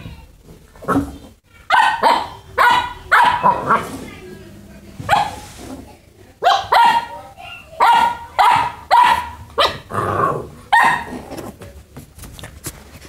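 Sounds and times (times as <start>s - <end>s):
puppy barking: 1.7s - 3.9s, 5.1s - 5.4s, 6.4s - 9.9s, 10.7s - 11.2s.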